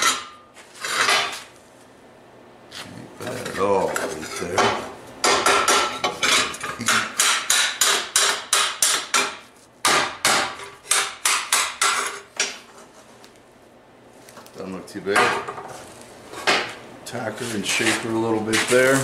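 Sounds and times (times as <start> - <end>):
hammer striking metal: 4.6 - 12.1.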